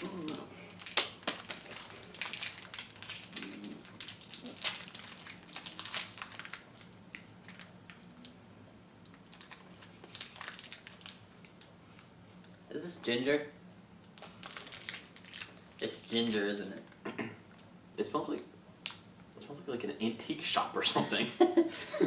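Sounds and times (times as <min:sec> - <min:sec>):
candy wrappers crinkling: 0:00.0 - 0:08.4, 0:09.0 - 0:11.8, 0:14.1 - 0:17.0.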